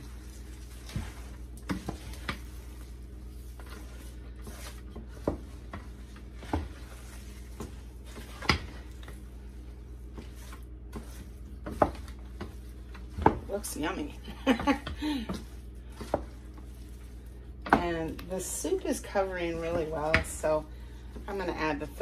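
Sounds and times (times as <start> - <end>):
spoon stirring thick sauce: 0.0 - 13.2
steady low hum: 0.0 - 22.0.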